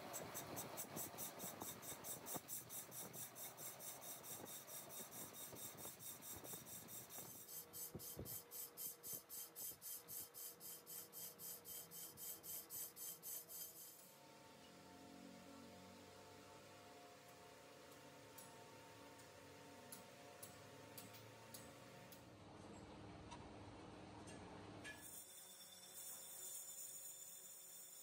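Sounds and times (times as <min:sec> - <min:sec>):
rhythmic rasping on metal: 0:00.1 - 0:14.0.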